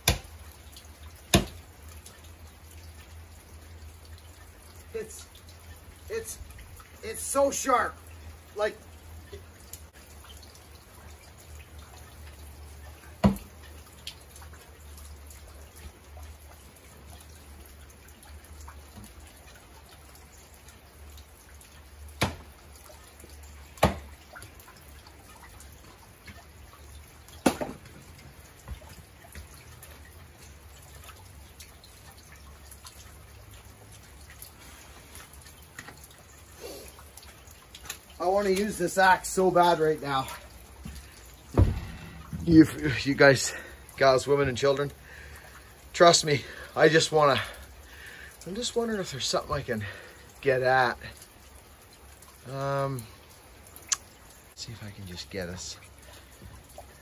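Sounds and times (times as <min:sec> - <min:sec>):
axe striking wood: 0:00.0 - 0:00.3, 0:01.3 - 0:01.6, 0:22.2 - 0:22.4, 0:23.8 - 0:24.1, 0:27.4 - 0:27.8
rain dripping: 0:00.0 - 0:57.0.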